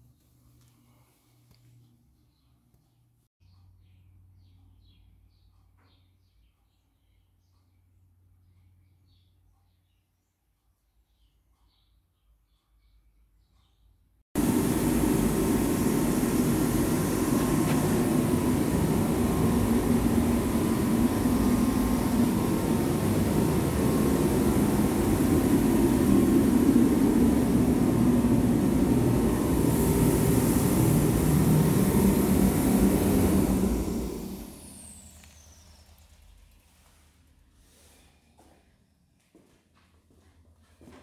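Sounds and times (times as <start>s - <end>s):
space heater fan and burner: 14.4s - 38.4s.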